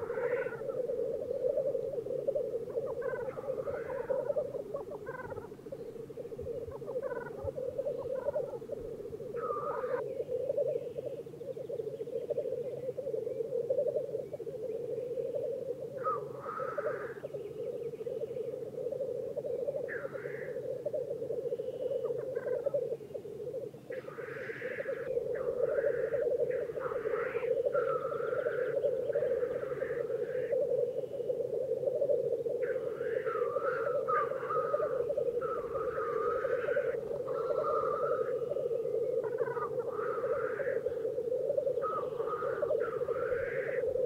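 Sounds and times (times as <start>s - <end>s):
black grouse bubbling chorus: 0.0s - 44.0s.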